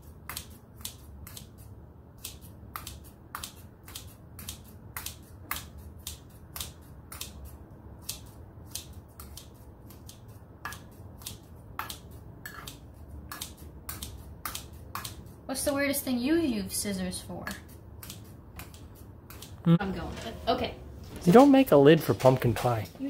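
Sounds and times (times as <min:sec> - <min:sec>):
scissors snipping soft pumpkin: 0:00.1 - 0:15.3.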